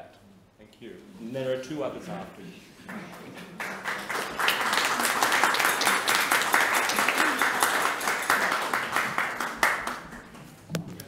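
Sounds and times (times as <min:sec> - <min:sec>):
audience applauding: 0:02.9 - 0:10.5.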